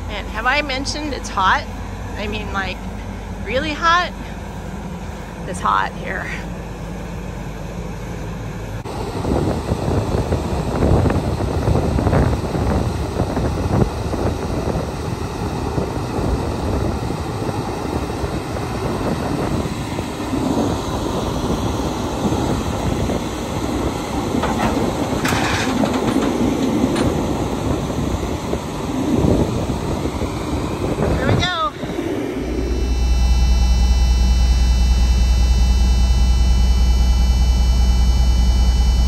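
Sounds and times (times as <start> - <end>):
diesel engine running: 0.0 - 39.0
machinery clunks: 23.6 - 28.2.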